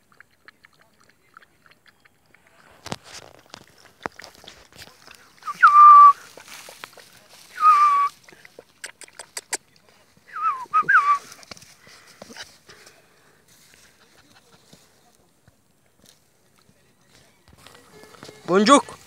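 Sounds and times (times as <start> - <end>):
puppies feeding clicks at bowl: 0.0 - 5.2, 8.2 - 9.9.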